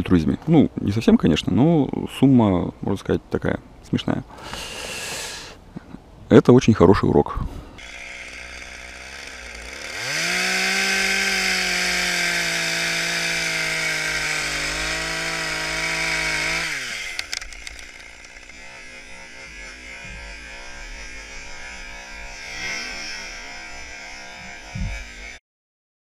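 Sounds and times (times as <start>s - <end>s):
chainsaw cutting tree trunk: 7.8s - 25.4s.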